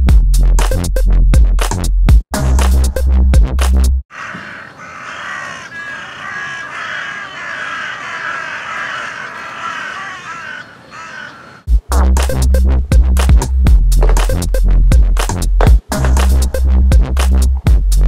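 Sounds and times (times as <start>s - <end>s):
crows cawing: 4.1s - 11.7s
electronic music with heavy bass: 11.7s - 18.0s.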